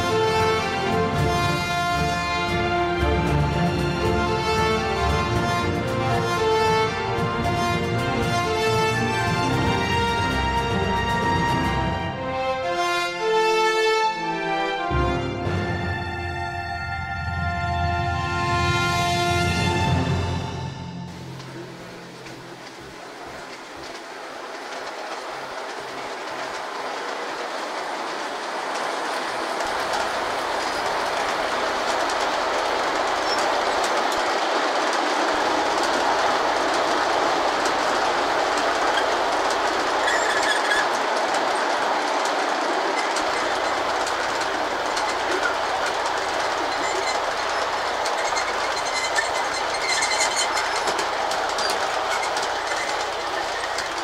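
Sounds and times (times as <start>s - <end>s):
model train wheels clattering: 21.1s - 54.0s.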